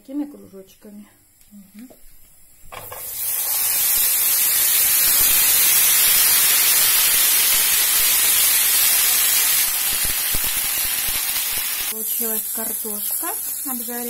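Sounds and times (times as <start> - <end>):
potato slices sizzling in oil: 2.8 - 14.0.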